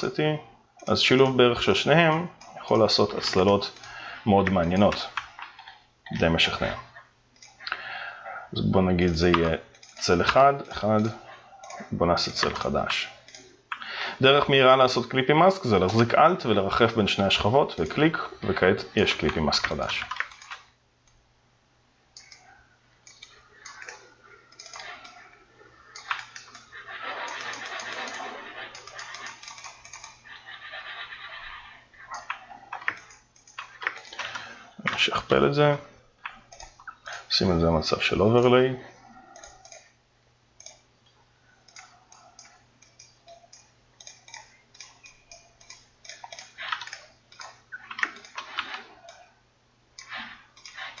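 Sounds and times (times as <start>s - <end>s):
faint steady low hum: 0.0s - 51.0s
mouse and keyboard clicks: 17.7s - 20.7s, 22.2s - 35.0s, 39.3s - 39.9s, 40.6s - 40.8s, 41.6s - 49.3s, 50.0s - 51.0s.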